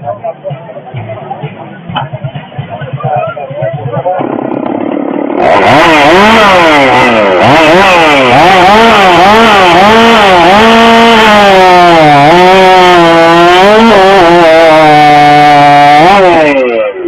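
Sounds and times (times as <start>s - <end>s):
chainsaw revving and cutting log: 4.2s - 17.0s.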